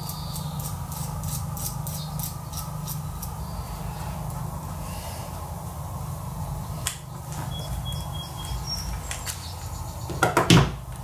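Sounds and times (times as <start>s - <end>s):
steady low hum: 0.0s - 11.0s
faint high squeaks: 7.4s - 9.2s.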